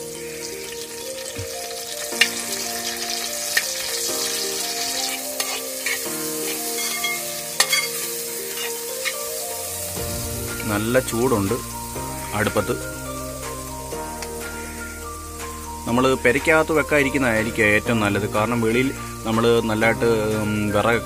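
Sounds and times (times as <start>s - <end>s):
vegetables sizzling in hot oil: 0.0s - 21.0s.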